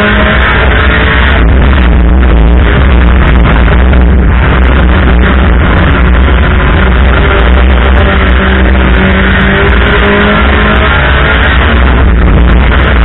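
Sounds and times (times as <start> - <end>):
race car engines revving high: 0.0 - 13.0.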